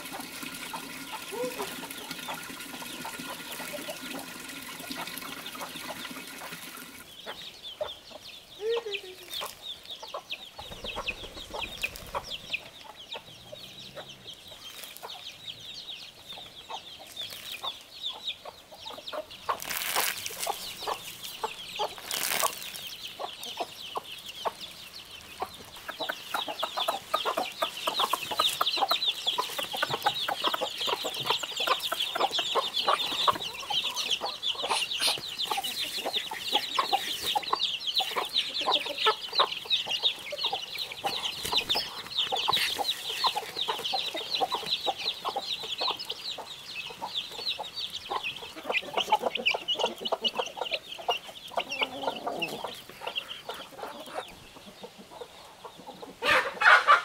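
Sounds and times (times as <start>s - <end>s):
chickens clucking and cheeping: 0.0s - 57.0s
rustling: 19.5s - 22.9s.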